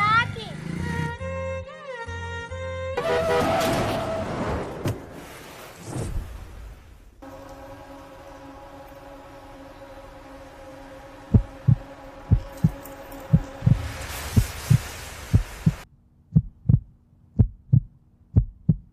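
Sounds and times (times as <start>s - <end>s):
faint hum: 7.2s - 14.0s
music drone with hiss: 7.2s - 14.9s
heartbeat thumps: 11.3s - 18.9s.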